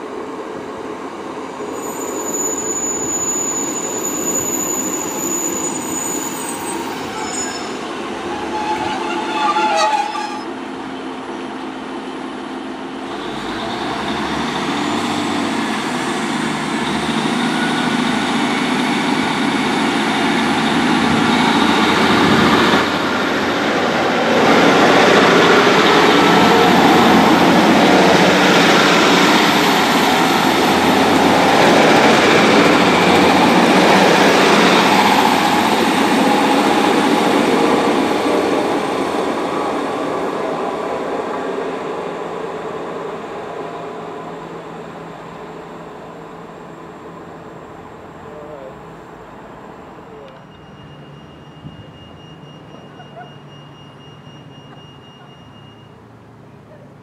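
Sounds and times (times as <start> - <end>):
train wheels on rails: 0.0 - 48.0
diesel train engines: 0.0 - 57.0.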